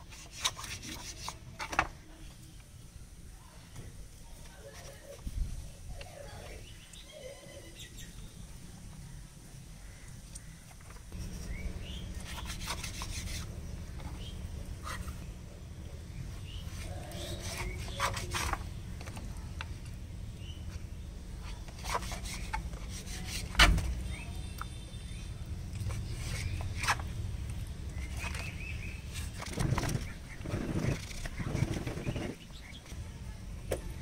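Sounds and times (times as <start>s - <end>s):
knife scraping flesh: 16.8s - 18.5s.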